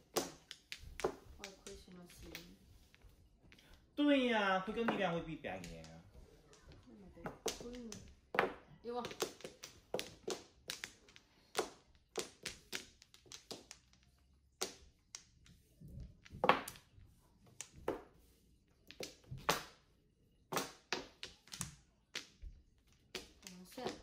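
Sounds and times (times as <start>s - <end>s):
mahjong tiles clacking: 0.0s - 18.1s, 18.8s - 24.0s.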